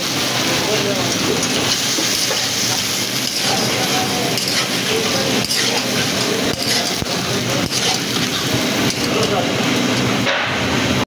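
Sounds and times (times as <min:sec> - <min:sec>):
meat sizzling in a pan: 0:00.0 - 0:10.2
metal spatula scraping and clinking: 0:01.1 - 0:09.5.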